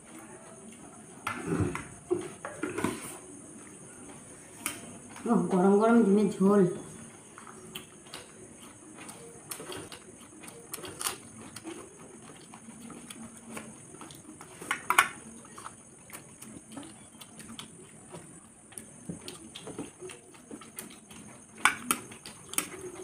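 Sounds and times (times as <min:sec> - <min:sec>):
chewing and lip smacks: 0:07.2 - 0:23.0.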